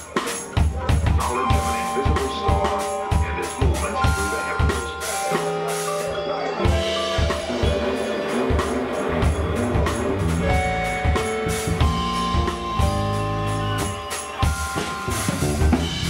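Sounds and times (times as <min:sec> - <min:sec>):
drum kit beat: 0:00.0 - 0:16.0
sustained keyboard tones: 0:01.0 - 0:15.8
bass: 0:05.4 - 0:16.0.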